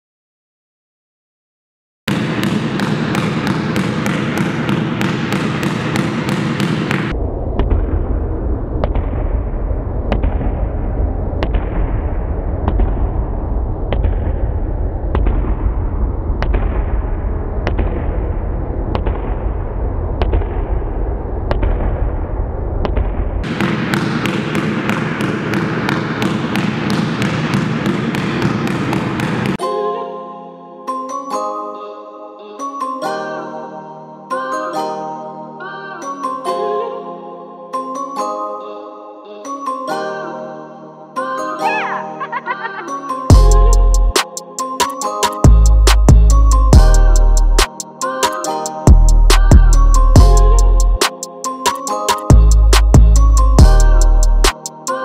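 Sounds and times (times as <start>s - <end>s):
basketball bouncing on gym floor: 2.1s - 7.1s, 22.9s - 29.6s
low rumble: 7.1s - 23.5s.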